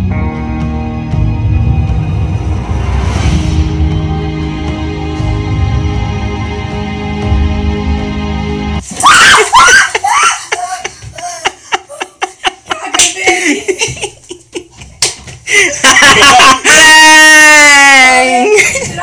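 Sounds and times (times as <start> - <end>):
background music: 0.0 - 9.7
woman crying out: 9.0 - 12.1
loud laughter: 9.0 - 14.7, 15.5 - 17.4.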